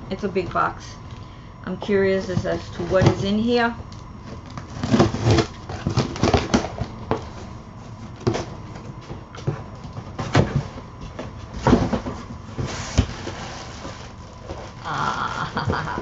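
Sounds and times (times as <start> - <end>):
cardboard scraping and rustling: 4.2 - 14.8.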